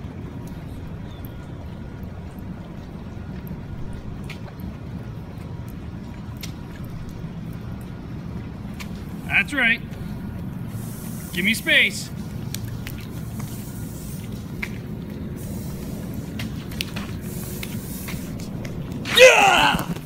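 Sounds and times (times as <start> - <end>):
low outdoor rumble: 0.0 - 20.0
light clicks and taps: 12.2 - 13.6.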